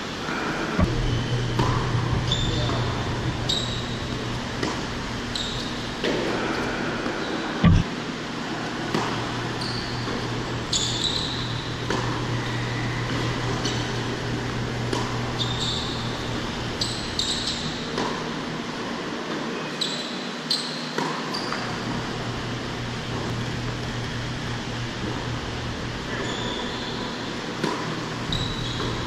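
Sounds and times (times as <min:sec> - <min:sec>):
ventilation hum: 0:00.0 - 0:29.0
shoes squeaking on court: 0:00.3 - 0:07.9, 0:09.0 - 0:14.0, 0:15.0 - 0:18.4, 0:19.8 - 0:22.0, 0:26.0 - 0:29.0
tennis ball bouncing: 0:01.6 - 0:02.0, 0:04.6 - 0:06.4, 0:11.8 - 0:12.3, 0:14.9 - 0:15.1
heavy thump: 0:07.6 - 0:07.9.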